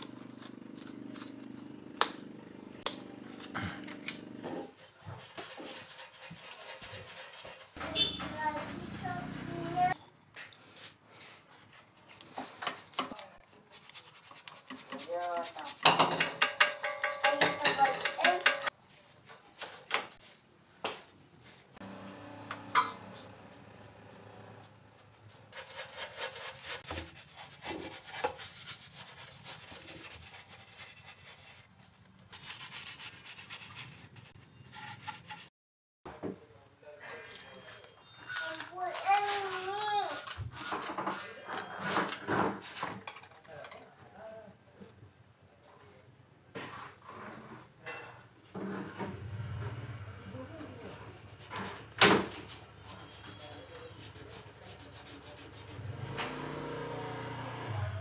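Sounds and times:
stiff brush scrubbing: 0:00.0 - 0:02.1, 0:03.0 - 0:18.7, 0:24.1 - 0:35.5, 0:38.4 - 0:42.0, 0:50.8 - 0:56.2.

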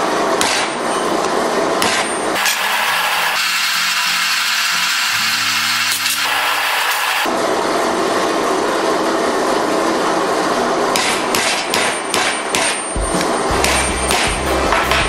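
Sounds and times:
hammer tapping metal pipe: 0:13.5 - 0:15.0.

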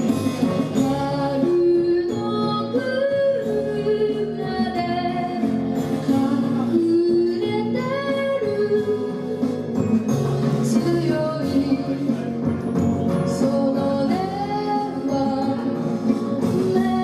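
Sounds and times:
guitar accompaniment: 0:00.0 - 0:17.0
girl singing: 0:00.8 - 0:09.3, 0:13.4 - 0:15.6, 0:16.4 - 0:17.0.

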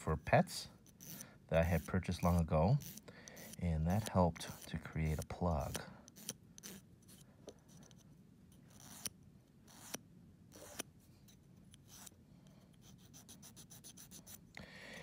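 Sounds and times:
nail file rasping on claw: 0:00.8 - 0:14.6.

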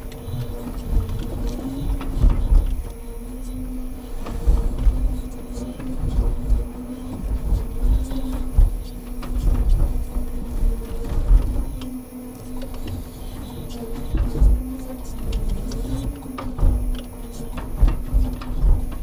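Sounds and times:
truck engine humming: 0:00.0 - 0:19.0.

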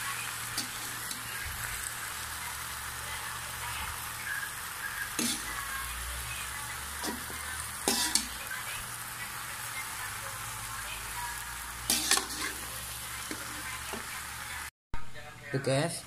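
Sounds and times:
greens sizzling in a wok: 0:00.0 - 0:14.7
metal spatula scraping pan: 0:05.2 - 0:05.6, 0:07.0 - 0:08.4, 0:11.9 - 0:13.6.

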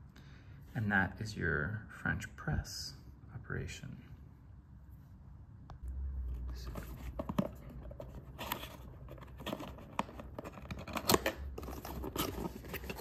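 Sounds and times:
cardboard box scraping and rubbing: 0:08.0 - 0:13.0.

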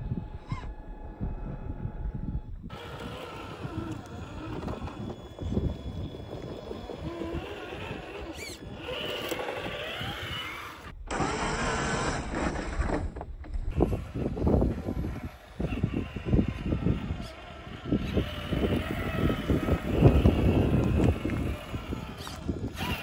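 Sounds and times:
rc car motor whining: 0:02.7 - 0:13.0, 0:13.7 - 0:23.0.

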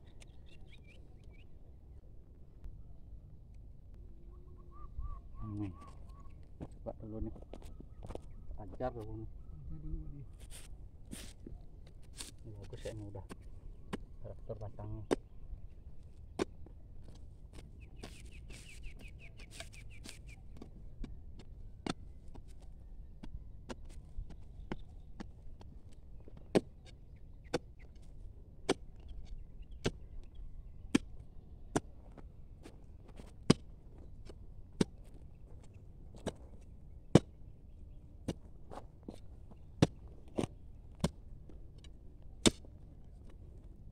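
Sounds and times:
bird chirping: 0:00.0 - 0:01.5, 0:04.2 - 0:06.5, 0:17.8 - 0:20.6
digging bar striking stony ground: 0:16.3 - 0:22.4, 0:26.4 - 0:30.1, 0:30.9 - 0:32.2, 0:33.1 - 0:35.2, 0:36.1 - 0:37.4, 0:38.2 - 0:43.4.

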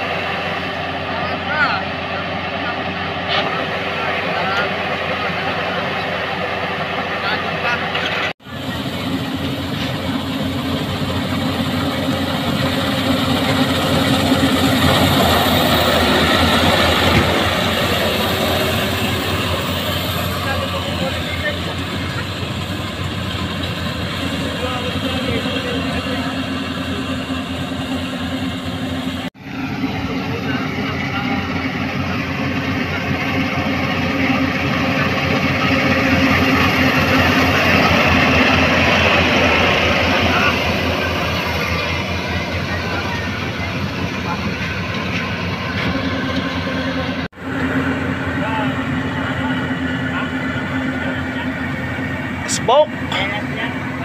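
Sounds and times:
combine harvester running: 0:00.0 - 0:54.0
threshing mechanical noise: 0:00.0 - 0:54.0.

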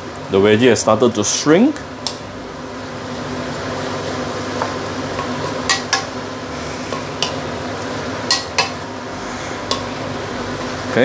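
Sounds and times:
leaves sizzling in a pan: 0:02.5 - 0:11.0
spatula stirring: 0:03.4 - 0:11.0
spatula knocking against pan: 0:04.6 - 0:06.1, 0:08.3 - 0:08.8.

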